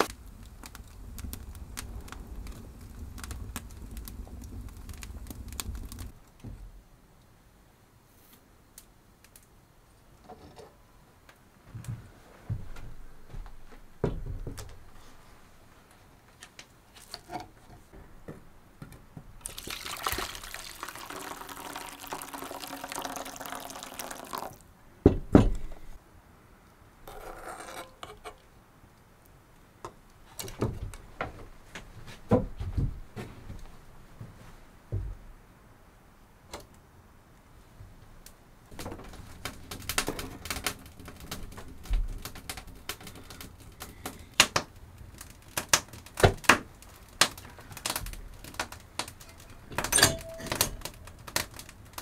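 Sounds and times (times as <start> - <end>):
soup pouring into metal pan: 19.4 - 24.6
cookware knocking and clunking: 49.9 - 50.8.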